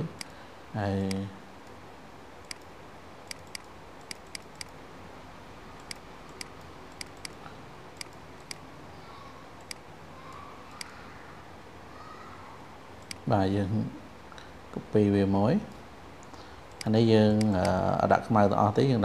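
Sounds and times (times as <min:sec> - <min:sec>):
faint steady hiss: 0:00.0 - 0:19.0
computer mouse clicking: 0:02.4 - 0:02.7, 0:03.3 - 0:04.8, 0:05.8 - 0:08.6, 0:09.6 - 0:10.9, 0:13.0 - 0:13.3, 0:15.7 - 0:17.8.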